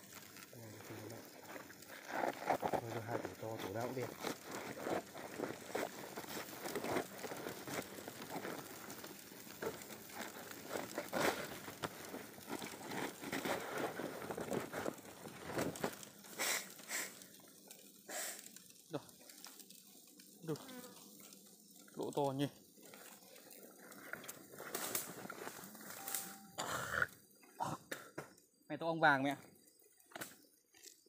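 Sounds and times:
bag and net rustling: 0:00.0 - 0:17.0
sharp crackles: 0:00.0 - 0:31.0.

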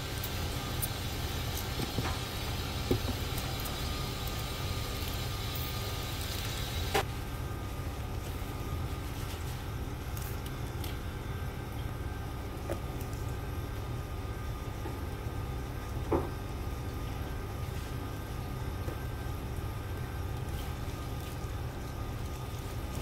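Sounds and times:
low mechanical rumble: 0:00.0 - 0:23.0.

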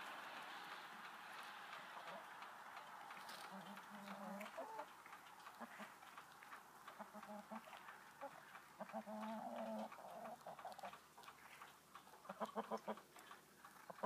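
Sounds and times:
hens making low calls: 0:01.8 - 0:14.0.

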